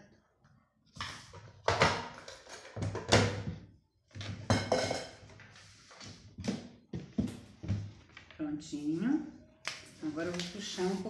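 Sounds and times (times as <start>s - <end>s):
objects clattering on a worktable: 0.9s - 8.3s.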